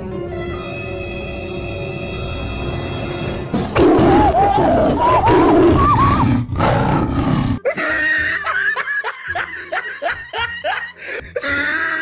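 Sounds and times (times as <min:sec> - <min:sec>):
person laughing: 0:04.3 - 0:06.2, 0:07.6 - 0:12.0.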